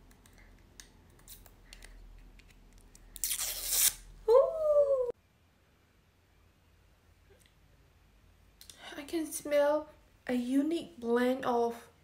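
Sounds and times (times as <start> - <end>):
packaging ripping: 3.1 - 4.0
woman saying oooh: 4.3 - 5.2.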